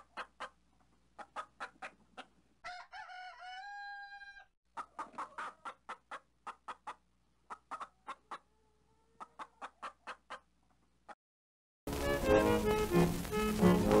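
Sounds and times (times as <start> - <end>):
rooster crow imitation: 2.6 - 4.5.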